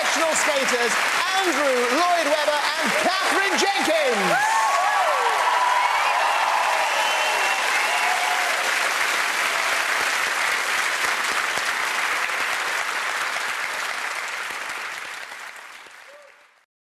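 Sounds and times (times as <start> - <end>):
audience cheering: 0.0 - 11.0
audience applauding: 0.0 - 16.6.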